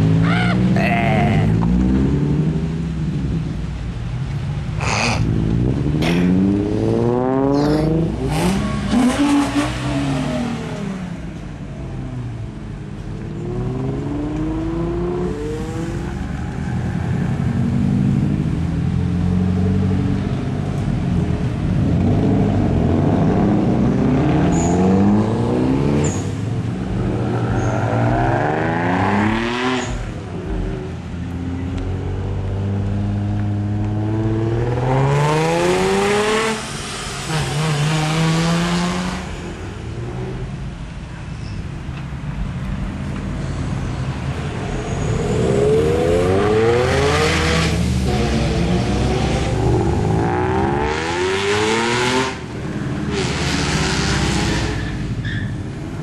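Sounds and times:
sports cars accelerating past: 0:21.9 - 0:40.4, 0:43.9 - 0:55.2.

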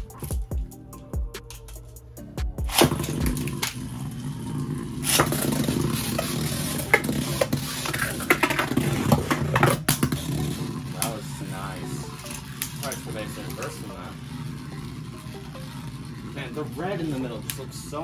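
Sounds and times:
spinning tops whirring: 0:00.0 - 0:18.0
spinning tops clacking together: 0:12.0 - 0:14.1
spinning tops launched with clack: 0:12.1 - 0:14.1.

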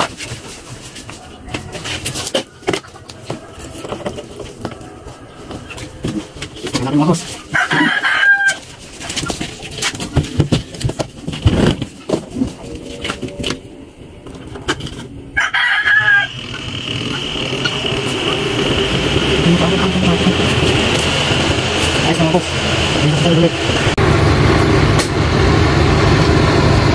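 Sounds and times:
knocks and handling noise: 0:00.0 - 0:07.9, 0:08.5 - 0:15.2
rooster crowing: 0:07.5 - 0:08.7, 0:15.3 - 0:19.4
washing machine motor hum: 0:12.4 - 0:26.9.

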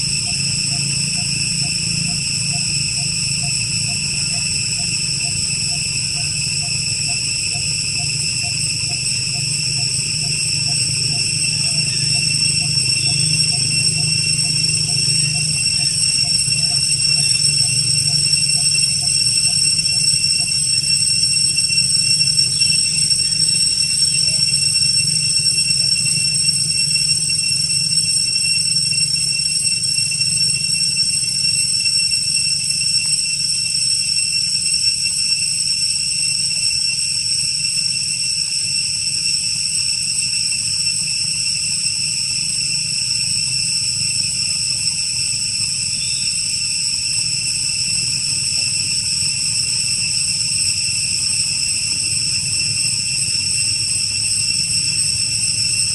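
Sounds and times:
low hum: 0:00.0 - 0:34.2
insects high-pitched chorus: 0:00.0 - 0:55.9.

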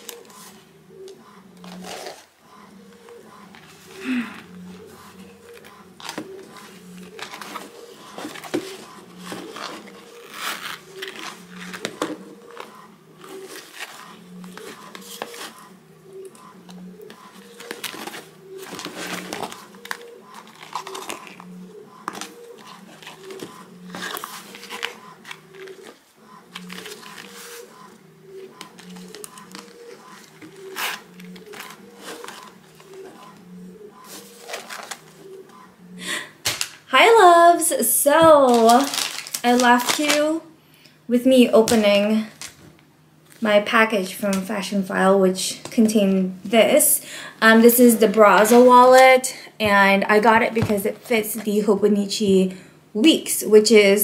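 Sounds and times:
packaging rustling and crinkling: 0:01.6 - 0:02.3, 0:05.0 - 0:15.7, 0:17.1 - 0:27.8, 0:28.6 - 0:33.4, 0:34.0 - 0:35.2, 0:38.2 - 0:40.4.

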